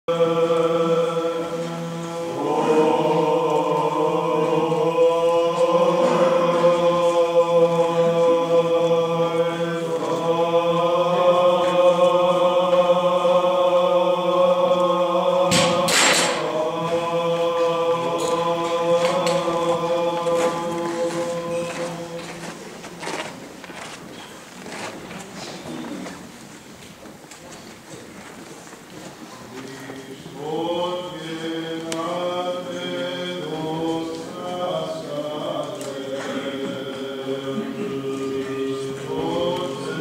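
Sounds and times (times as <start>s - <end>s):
voices chanting: 0.1s - 22.8s, 29.5s - 40.0s.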